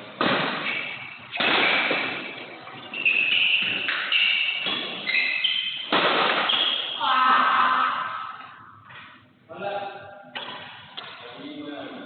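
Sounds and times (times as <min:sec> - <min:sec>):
rackets hitting shuttlecock: 0:00.2 - 0:02.4, 0:03.0 - 0:07.0, 0:10.3 - 0:11.2
shoes squeaking on court: 0:02.8 - 0:07.0.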